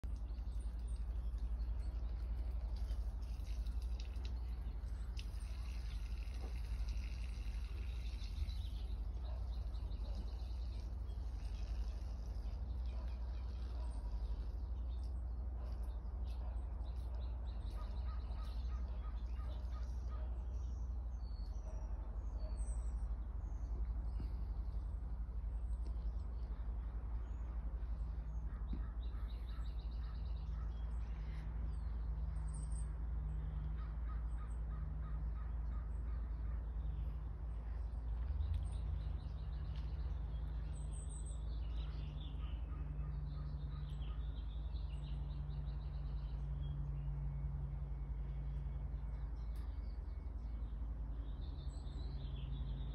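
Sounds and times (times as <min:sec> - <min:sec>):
birds calling: 0:00.0 - 0:52.9
steady low rumble: 0:00.0 - 0:52.9.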